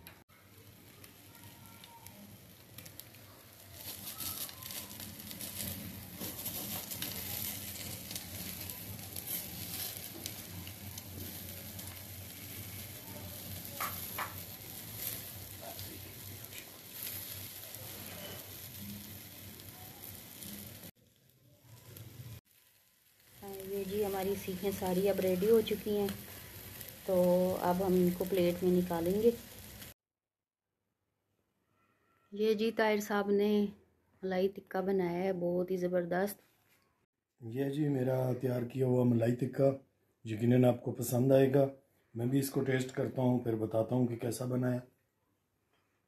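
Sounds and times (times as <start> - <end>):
meat sizzling over charcoal: 0.0 - 30.0
oil crackling on hot coals: 0.0 - 30.0.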